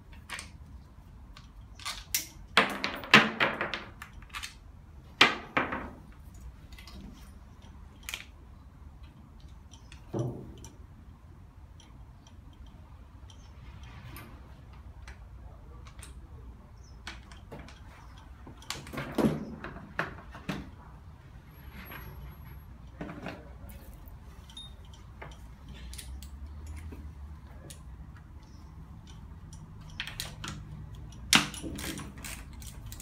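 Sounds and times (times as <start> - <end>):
metallic clicks and clanks of tools: 1.3 - 4.7, 6.1 - 10.9, 11.7 - 16.4, 22.8 - 33.0.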